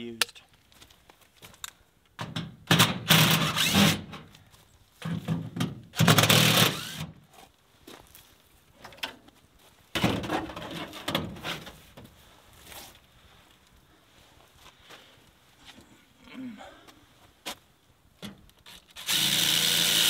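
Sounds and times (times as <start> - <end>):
cordless drill on steel panel: 3.1 - 4.0, 6.0 - 7.1, 18.6 - 20.0.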